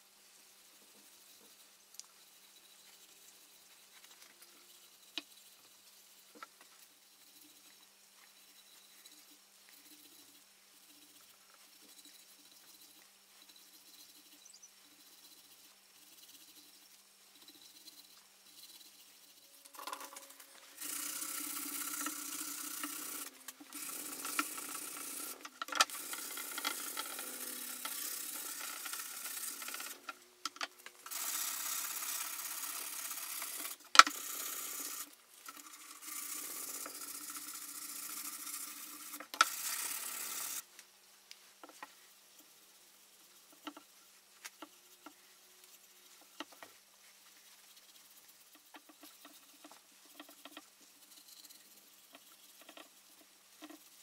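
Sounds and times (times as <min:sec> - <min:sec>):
faint ticks: 0:00.9 - 0:02.2, 0:40.7 - 0:41.9
sanding pad rasping on wood: 0:20.4 - 0:30.1, 0:31.0 - 0:40.6.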